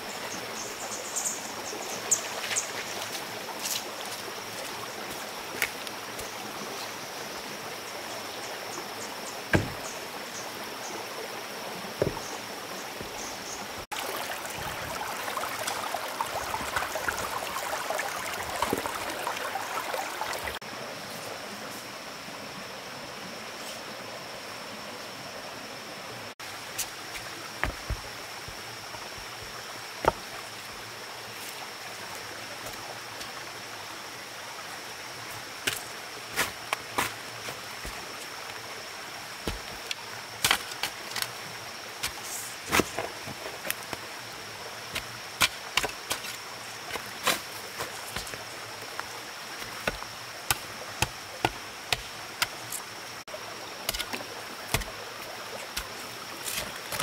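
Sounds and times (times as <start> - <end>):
sharp knocks and taps: 12.0 - 12.2
steady hiss: 26.3 - 57.0.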